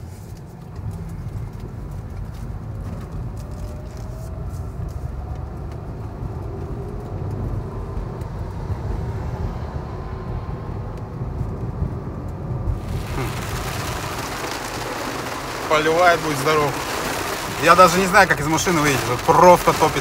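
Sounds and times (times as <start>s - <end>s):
car cabin rumble: 12.6s - 20.0s
heavy rain drumming on roof: 12.6s - 20.0s
raindrops ticking on car: 12.6s - 20.0s.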